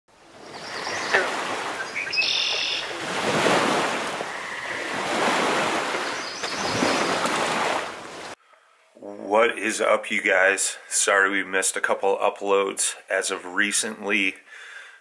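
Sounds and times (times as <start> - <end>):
ocean surf washing in: 0.3 - 8.4
short bird calls: 0.4 - 3.1.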